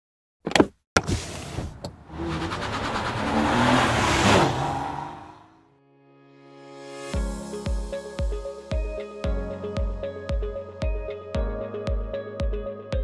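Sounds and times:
car engine accelerating past: 0:02.0 - 0:05.6.

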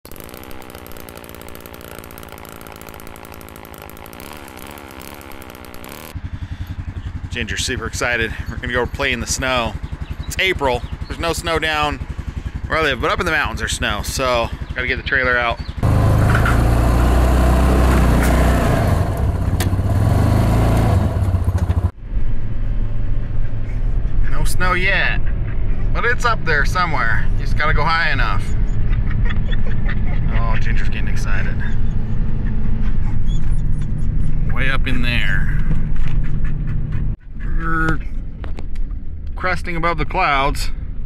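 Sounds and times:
chainsaw engine running: 0:00.0 - 0:15.0, 0:15.8 - 0:21.9.

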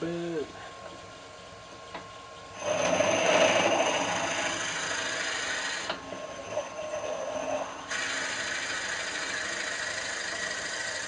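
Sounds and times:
drill bit boring into wood: 0:02.6 - 0:11.0
wood lathe whining: 0:02.6 - 0:11.0.

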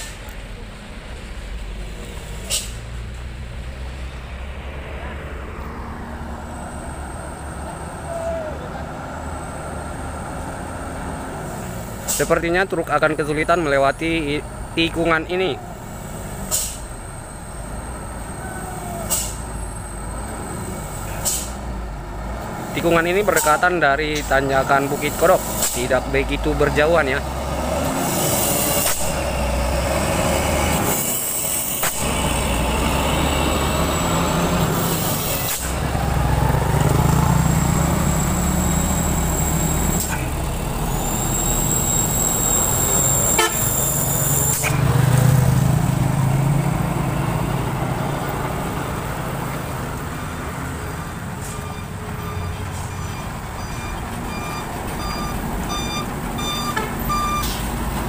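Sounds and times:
diesel trucks driving past: 0:00.0 - 0:58.0
short electronic beeps: 0:51.4 - 0:57.6.

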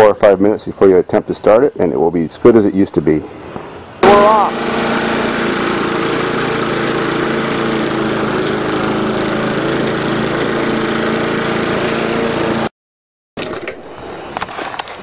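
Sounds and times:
lawn mower engine running: 0:04.0 - 0:12.7.

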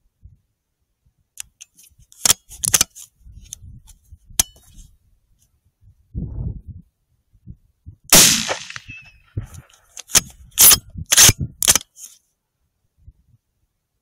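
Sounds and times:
rifle handling clicks and rattles: 0:01.4 - 0:03.6, 0:08.3 - 0:12.2.

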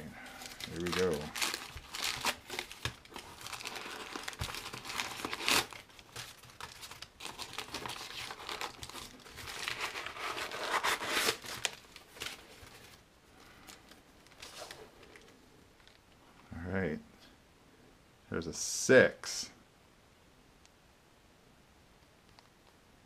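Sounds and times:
packing paper crinkling: 0:00.2 - 0:15.9.

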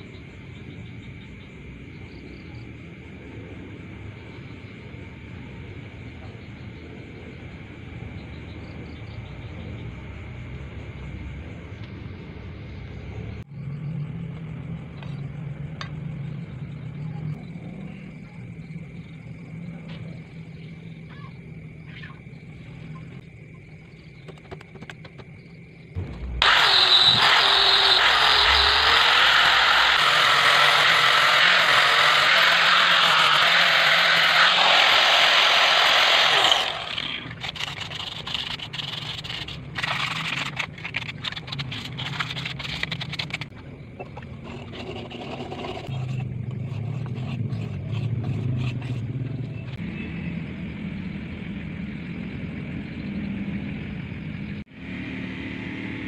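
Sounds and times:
angle grinder running: 0:26.0 - 0:40.0
hand sanding scraping strokes: 0:26.4 - 0:43.5.

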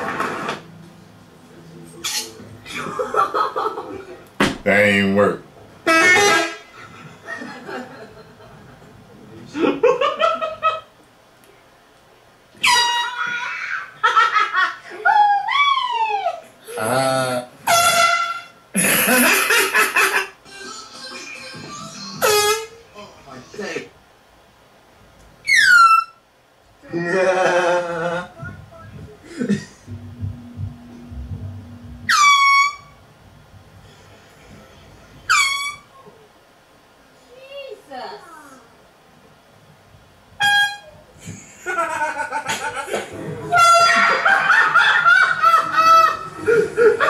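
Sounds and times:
people laughing: 0:02.6 - 0:04.2, 0:06.8 - 0:10.9, 0:26.9 - 0:28.5, 0:41.2 - 0:47.0
air horn blasts: 0:05.9 - 0:06.7, 0:12.6 - 0:13.2, 0:17.7 - 0:18.6, 0:29.9 - 0:33.0, 0:40.4 - 0:40.9, 0:43.5 - 0:44.2
low hum: 0:28.4 - 0:35.3
low thuds: 0:29.9 - 0:32.3.

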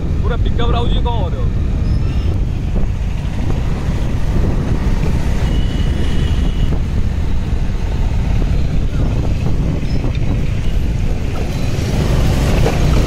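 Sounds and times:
street traffic: 0:00.0 - 0:13.0
wind rumbling on microphone: 0:00.0 - 0:13.0
scooter engine: 0:02.5 - 0:13.0
high steady horn tone: 0:05.2 - 0:06.9.

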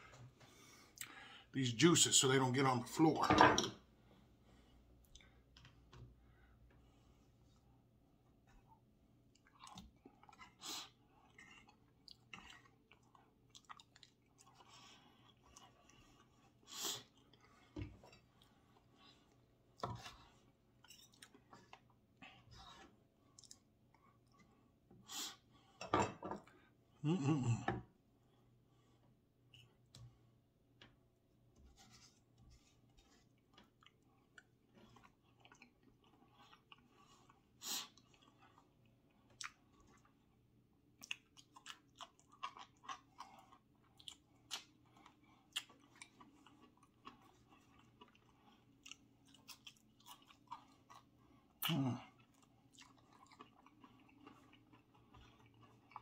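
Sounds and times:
person chewing: 0:08.6 - 0:25.5, 0:32.2 - 0:56.0.

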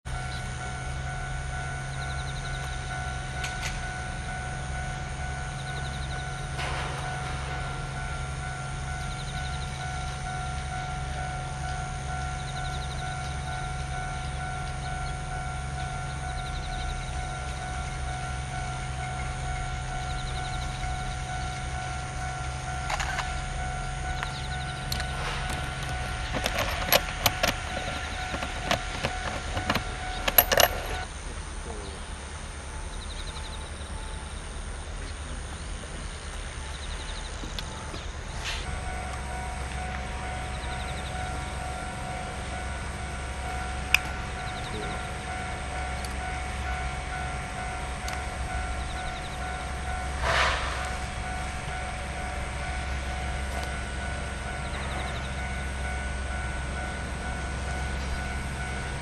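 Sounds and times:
locomotive whine: 0:00.0 - 0:59.0
train wheels clacking: 0:00.1 - 0:31.1, 0:36.8 - 0:59.0
short hiss: 0:50.2 - 0:51.0.

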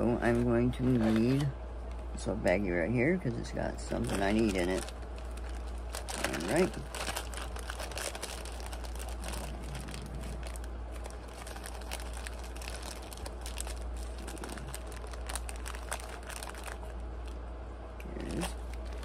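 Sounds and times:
plastic bag crinkling: 0:03.8 - 0:17.4, 0:18.0 - 0:19.0.

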